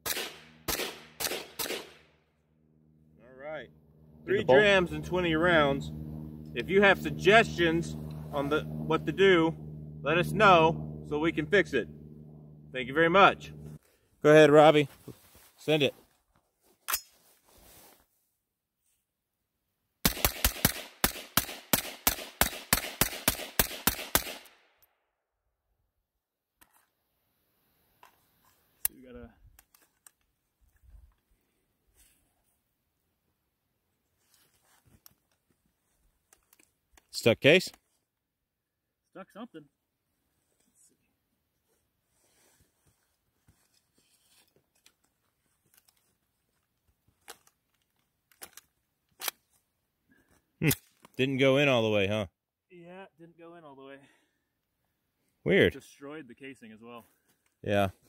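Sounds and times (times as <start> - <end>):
rifle firing rapid shots: 0.0 - 2.0, 20.1 - 24.4.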